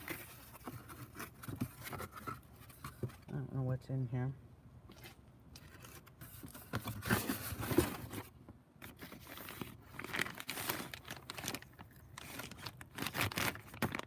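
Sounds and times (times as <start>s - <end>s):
plastic bags crinkling: 8.8s - 14.0s.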